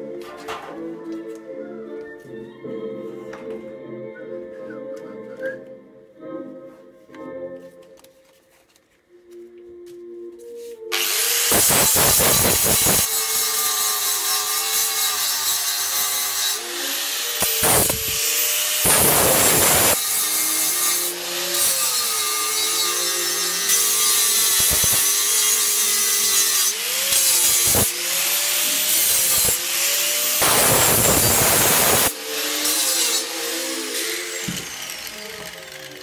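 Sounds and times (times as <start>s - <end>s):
angle grinder motor whine: 10.9s - 13.7s, 16.6s - 20.0s, 25.4s - 36.0s
grinder disc rasping through metal: 10.9s - 36.0s.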